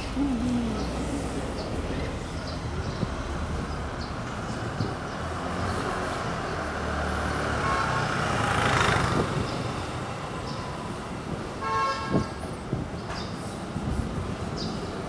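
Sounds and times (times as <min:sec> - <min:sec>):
vehicle passing: 0:00.0 - 0:11.4
street traffic: 0:00.0 - 0:15.0
vehicle horn toot: 0:11.6 - 0:12.3.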